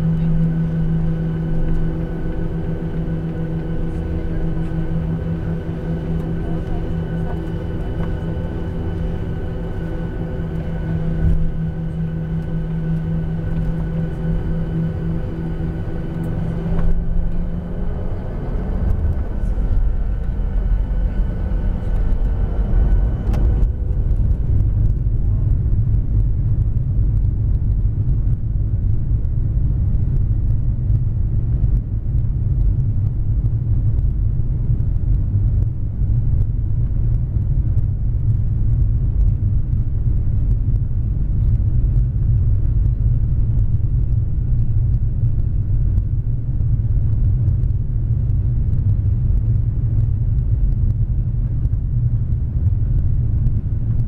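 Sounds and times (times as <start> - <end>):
faint whining tones: 0.0 - 26.9
jet engines rumbling: 0.0 - 54.0.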